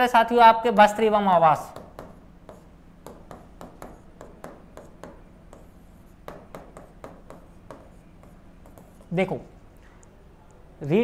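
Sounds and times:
pen tapping on a screen: 1.7 - 9.1.

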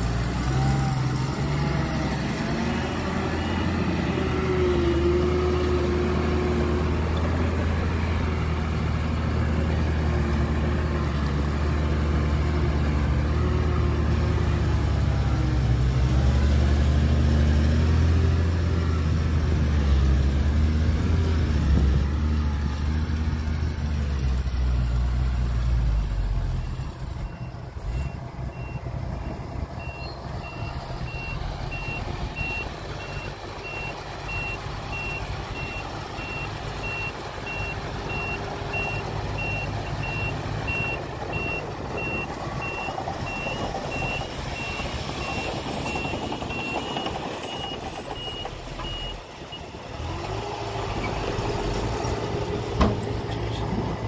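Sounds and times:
heavy diesel engine: 0.0 - 54.0
truck reversing alarm beeps: 1.3 - 8.8, 25.9 - 49.8.

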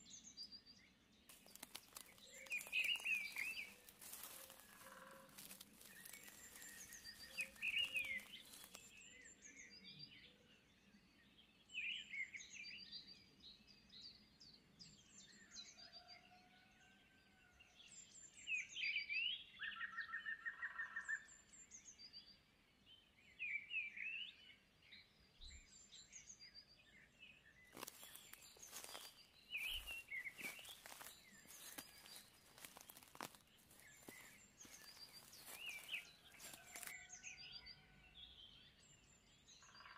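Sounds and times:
small birds chirping: 1.3 - 10.4, 25.1 - 37.6.

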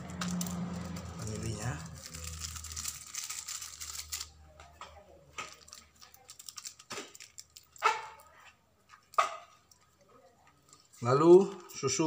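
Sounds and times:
plastic sachet crinkling: 0.0 - 4.4, 5.4 - 8.3
light clicks and crackles: 0.2 - 11.8.

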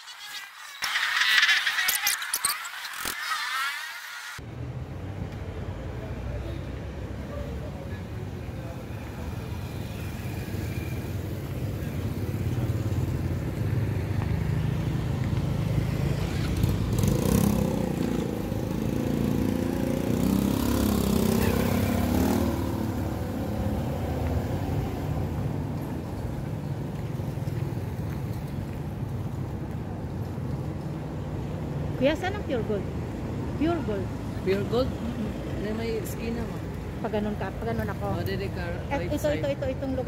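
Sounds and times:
street traffic: 0.0 - 40.0
vehicle driving past: 12.2 - 25.7.

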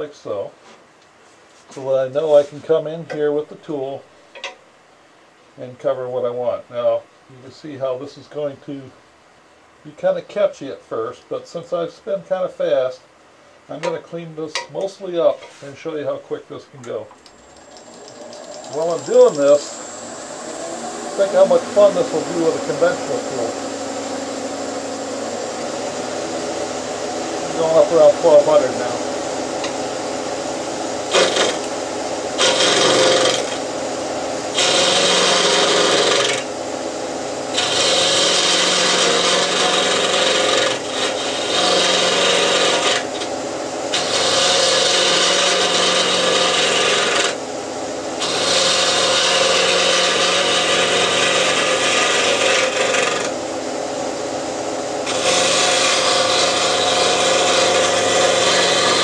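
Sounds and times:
turning tool cutting wood: 17.3 - 24.7, 27.3 - 29.0, 31.0 - 33.7, 34.5 - 36.5, 37.5 - 47.4, 48.2 - 53.4, 55.0 - 59.0
lathe humming: 17.3 - 59.0.

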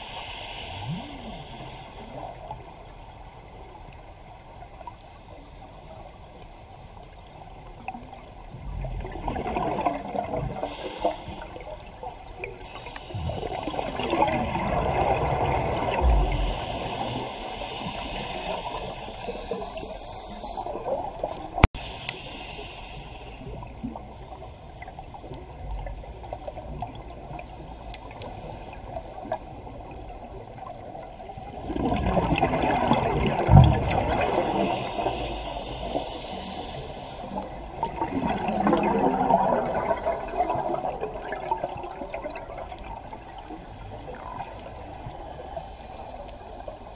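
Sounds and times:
regulator hissing inhalations: 0.0 - 2.5, 10.6 - 11.7, 12.6 - 14.1, 16.1 - 20.8, 21.8 - 23.9, 34.3 - 37.7
bubbling exhaled air: 12.6 - 21.7, 31.6 - 43.0.

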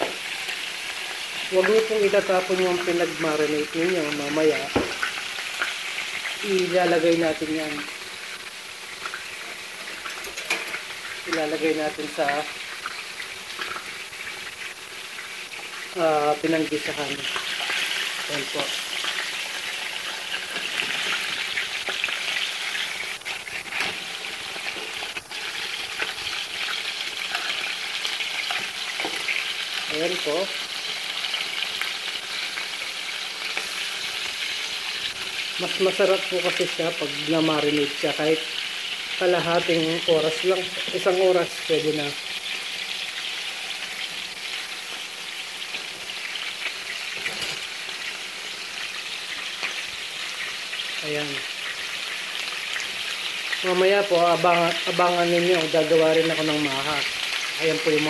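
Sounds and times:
ribs sizzling in frying pan: 0.0 - 58.0
small crackles and pops: 12.6 - 15.9, 17.3 - 29.9, 49.4 - 53.6.

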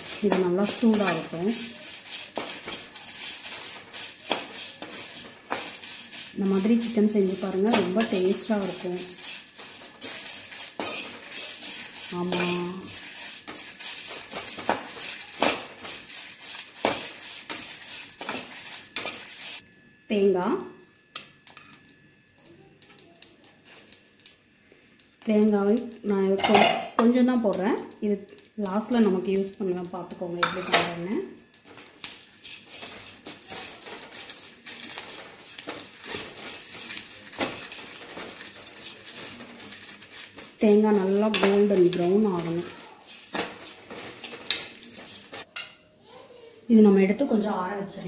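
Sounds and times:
metal ladle scraping metal pan: 0.0 - 19.6, 26.4 - 26.9, 31.6 - 45.7.

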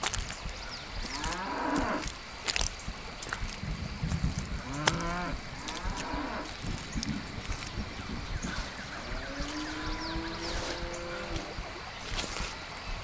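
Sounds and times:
steady hiss: 0.0 - 13.0
cattle mooing: 9.0 - 11.6.

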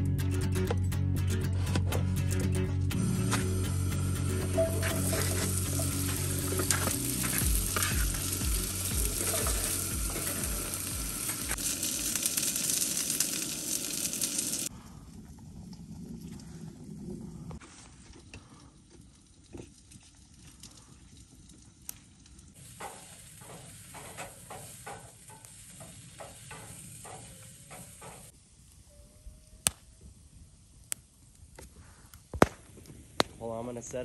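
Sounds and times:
campfire crackling: 2.9 - 34.0
potatoes sizzling in skillet: 3.0 - 14.7, 22.5 - 28.3.

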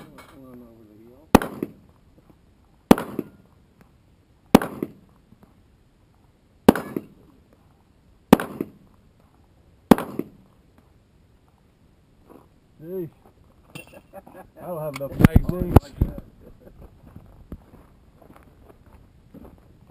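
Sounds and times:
pistol shots: 1.3 - 1.8, 2.9 - 3.4, 4.5 - 5.0, 6.6 - 7.2, 8.3 - 8.8, 9.9 - 10.4.

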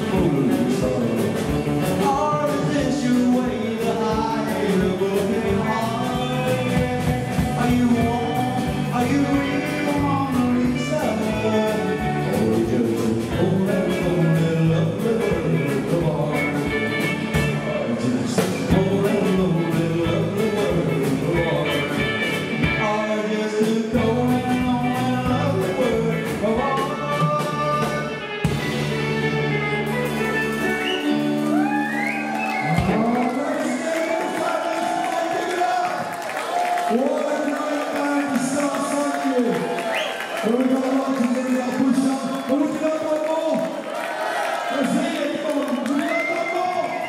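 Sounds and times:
drum kit beat: 0.0 - 23.0, 23.6 - 35.0
electric guitars: 0.0 - 43.9.

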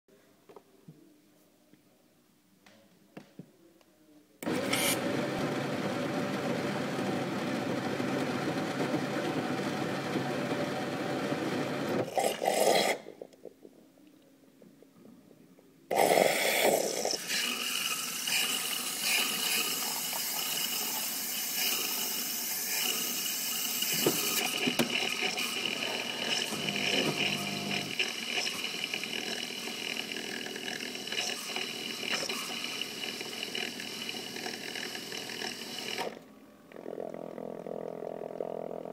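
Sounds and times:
coffee machine hissing with whine: 4.4 - 12.1, 16.0 - 36.2
coffee machine motor whirring: 4.4 - 12.1, 17.8 - 36.2.

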